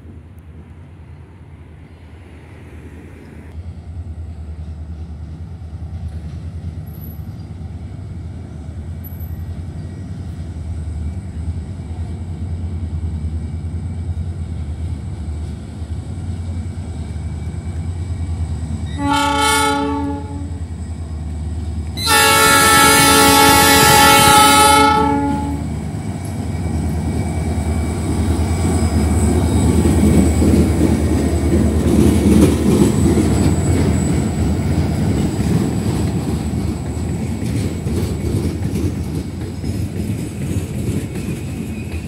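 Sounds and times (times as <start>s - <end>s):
diesel locomotive engine rumble: 0.0s - 42.0s
train horn blasts: 18.8s - 20.6s, 22.0s - 25.7s.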